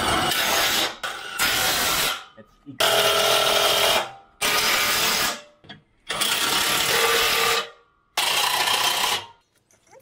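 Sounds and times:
power tool driving bolts: 0:06.0 - 0:09.3.

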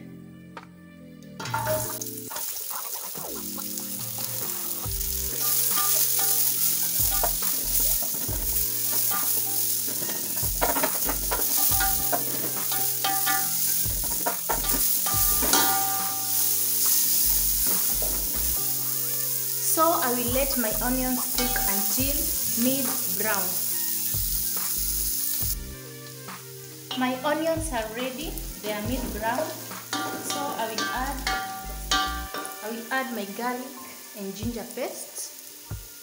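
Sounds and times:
onions sizzling in hot oil: 0:01.5 - 0:36.0.

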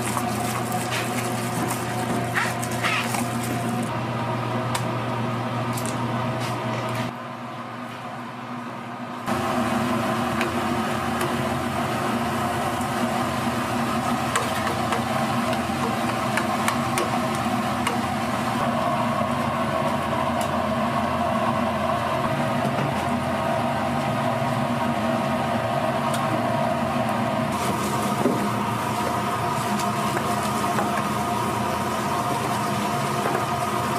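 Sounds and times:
kitchen machine hum: 0:00.0 - 0:33.9
food deep-frying in oil: 0:27.5 - 0:33.9.

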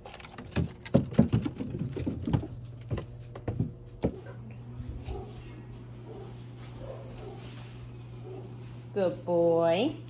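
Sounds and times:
dog footfalls on wooden stairs: 0:00.4 - 0:04.4.

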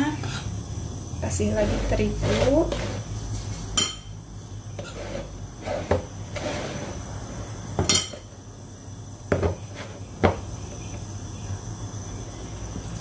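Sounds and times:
metal spoon scooping flour: 0:01.5 - 0:03.1.

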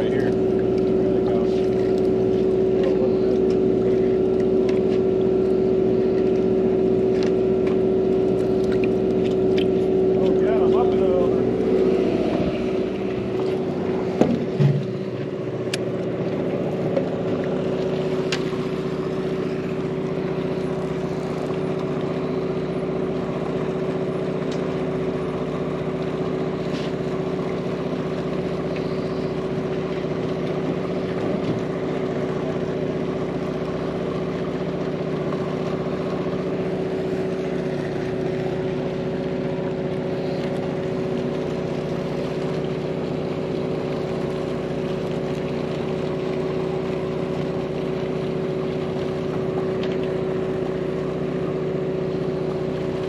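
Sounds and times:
boat engine drone: 0:00.0 - 0:53.0
knocks on boat: 0:14.1 - 0:15.1.

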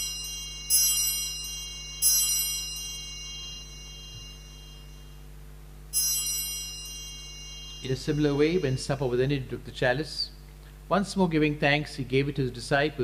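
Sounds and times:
altar bell ringing: 0:00.0 - 0:09.6.

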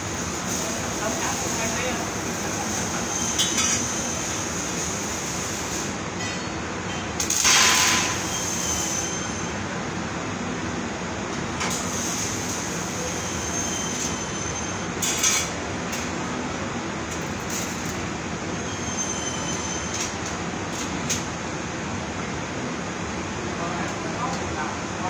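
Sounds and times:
machinery and ventilation running: 0:00.0 - 0:25.0.

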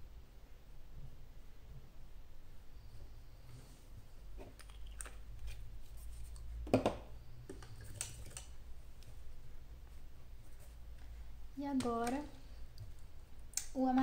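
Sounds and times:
low steady hum: 0:00.0 - 0:14.0
paint pots clicking and knocking: 0:04.3 - 0:09.2, 0:10.9 - 0:14.0.

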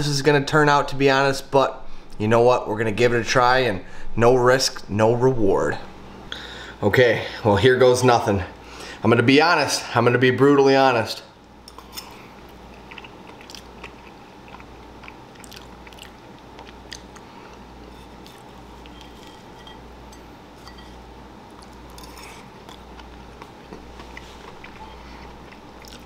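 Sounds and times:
low steady hum: 0:00.0 - 0:26.0
chewing crunchy food: 0:11.6 - 0:19.8, 0:20.8 - 0:26.0.

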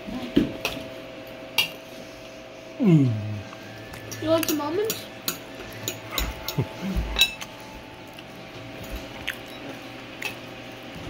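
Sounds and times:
cutlery clinking on glass bowl: 0:07.2 - 0:07.5.

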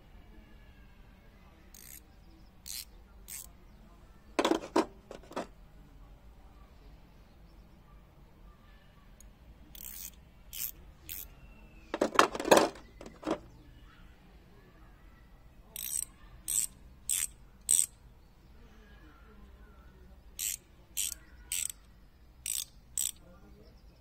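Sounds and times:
ratchet wrench clicks: 0:01.8 - 0:02.0, 0:02.6 - 0:03.5, 0:09.7 - 0:11.3, 0:15.8 - 0:18.0, 0:20.4 - 0:21.8, 0:22.4 - 0:23.2
metal wrenches clinking: 0:04.4 - 0:05.5, 0:12.0 - 0:13.4.

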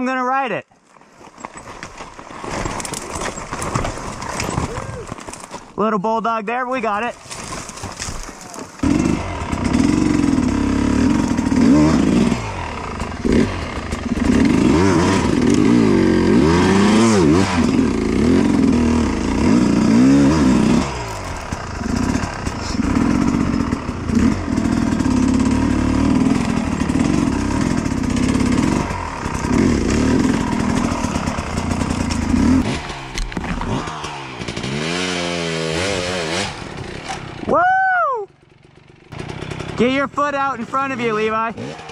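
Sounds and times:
dirt bike engine revving: 0:08.5 - 0:37.6, 0:38.4 - 0:41.9.

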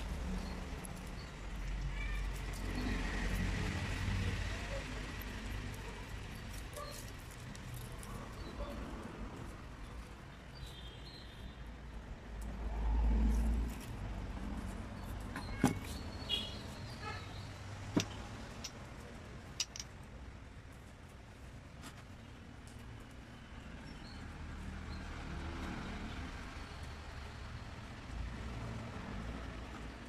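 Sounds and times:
metal tools clicking on a workbench: 0:19.5 - 0:20.0.

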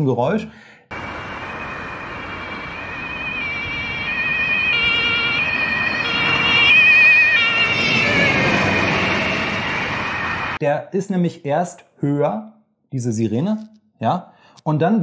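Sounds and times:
police car two-tone siren: 0:00.9 - 0:10.6
road and traffic noise: 0:00.9 - 0:10.6.

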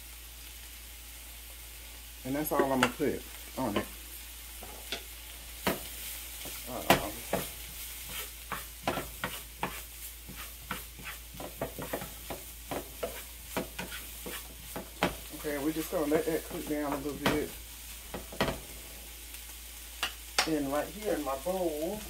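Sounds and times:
vegetables sizzling in a frying pan: 0:00.0 - 0:22.0
utensil scraping a pan: 0:05.7 - 0:19.1.

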